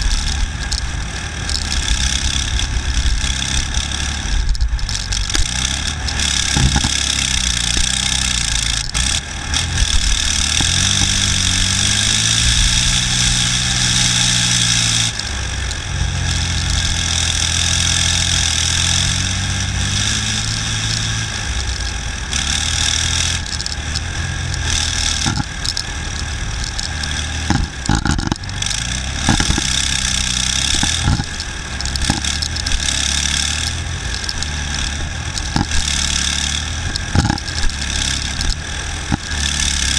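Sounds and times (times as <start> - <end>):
clatter of tracks and hull: 0.0 - 39.9
diesel engine running loudly: 0.0 - 39.9.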